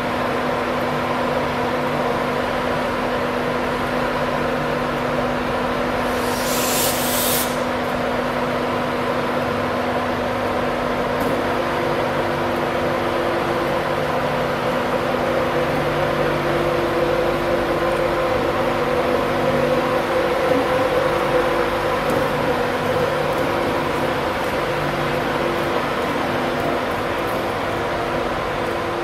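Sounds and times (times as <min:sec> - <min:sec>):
air hiss: 0:06.0 - 0:07.8.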